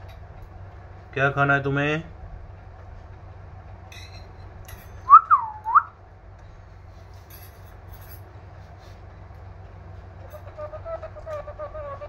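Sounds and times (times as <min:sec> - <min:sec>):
short swooping whistle: 0:05.1 - 0:05.9.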